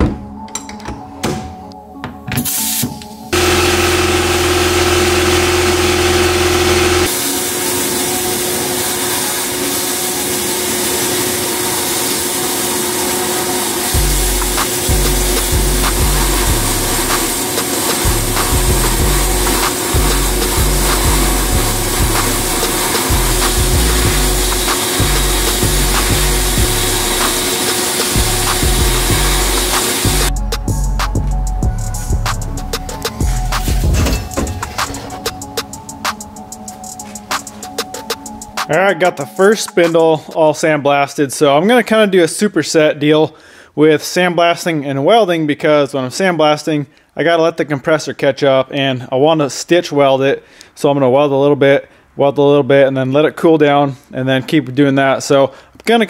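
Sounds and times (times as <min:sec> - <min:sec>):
sandblast gun hissing: 0:02.5 - 0:30.5
motor hum: 0:03.4 - 0:09.1, 0:13.0 - 0:30.4.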